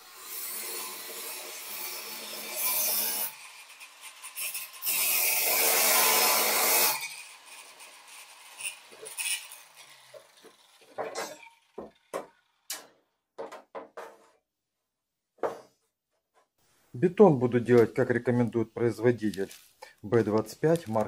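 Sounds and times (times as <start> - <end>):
angle grinder cutting metal: 0.0 - 12.8
handling knocks and clatters: 10.9 - 14.4.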